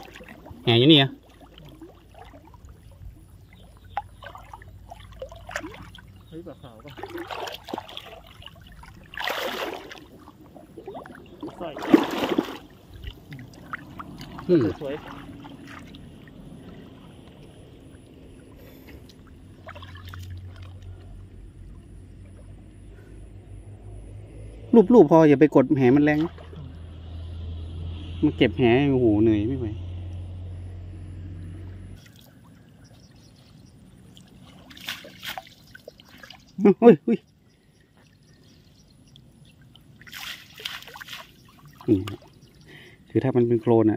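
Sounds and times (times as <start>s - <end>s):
muddy water splashing: 0.0s - 28.2s, 32.0s - 43.9s
low hum: 7.8s - 34.8s.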